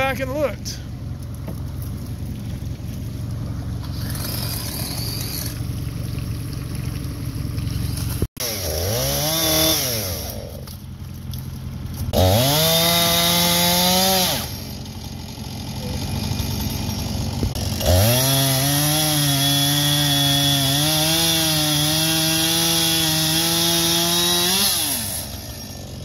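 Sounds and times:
outboard motor idling: 0.4s - 8.2s, 14.5s - 18.0s
chainsaw cutting into tree: 3.3s - 6.4s, 7.2s - 10.9s, 12.1s - 26.0s
chainsaw revving: 3.6s - 5.9s, 7.5s - 10.7s, 12.1s - 26.0s.

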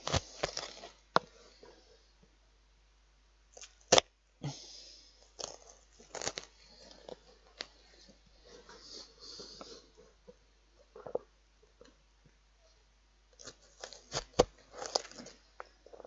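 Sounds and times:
onion crunching as sliced: 0.0s - 1.0s, 5.4s - 6.5s, 13.4s - 15.4s.

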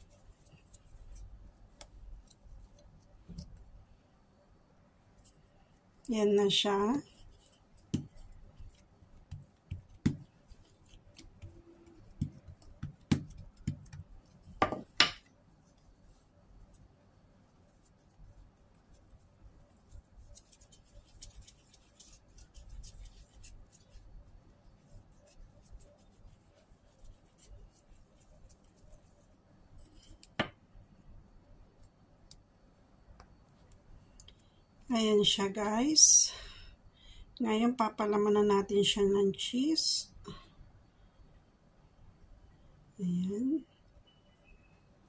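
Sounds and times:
hands tapping bread dough: 7.9s - 8.3s, 9.1s - 10.4s, 11.1s - 15.3s.

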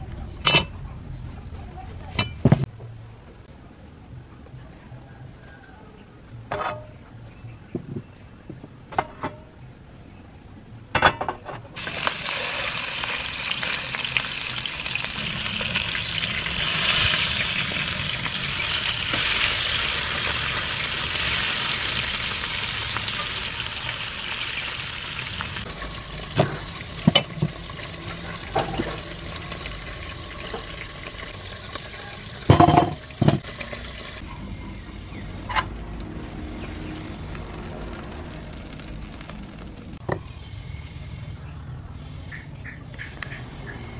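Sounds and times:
fish sizzling in hot oil: 11.8s - 34.2s, 36.6s - 40.0s.

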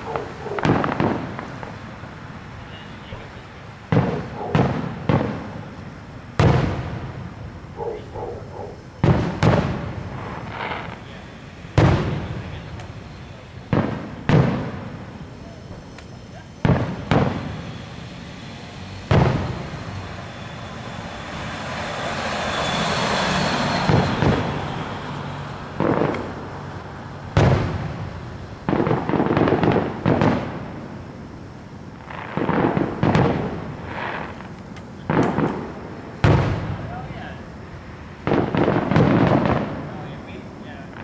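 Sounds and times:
fireworks booming: 0.0s - 41.0s.

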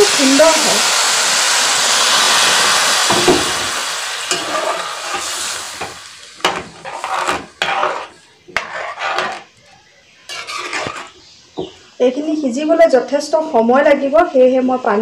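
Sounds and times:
water sizzling in hot pot: 0.0s - 9.5s
ladle scraping metal pot: 4.3s - 9.6s, 10.3s - 11.3s.

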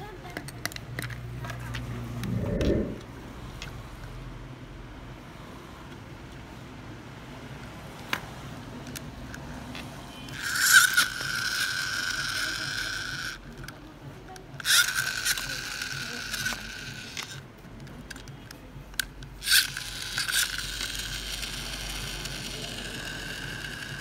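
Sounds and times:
toy cars clicking: 0.0s - 1.9s, 8.8s - 24.0s
toy friction motor whirring: 10.3s - 13.8s, 14.5s - 17.5s, 19.0s - 24.0s.

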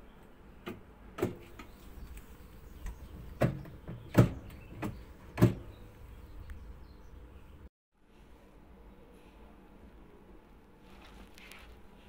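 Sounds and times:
knocks on washing machine: 0.7s - 1.7s, 2.8s - 5.8s.

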